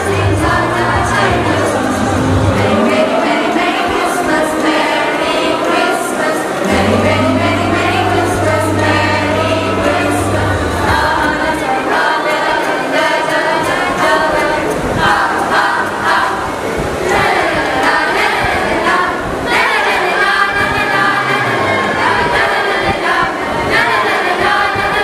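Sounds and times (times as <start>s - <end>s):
children's choir singing: 0.0s - 25.0s
low held note: 6.6s - 11.9s.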